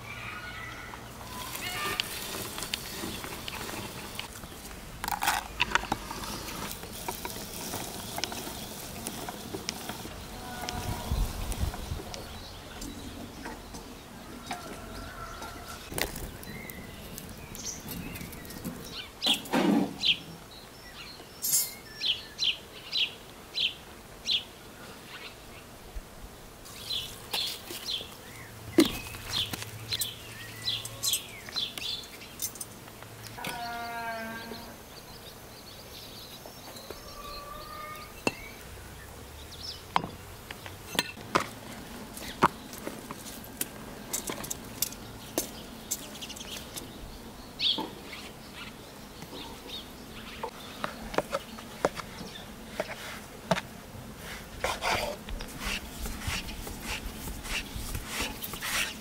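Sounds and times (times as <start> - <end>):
birds chirping: 0.0 - 25.8, 26.7 - 59.0
hands working dough: 51.2 - 59.0.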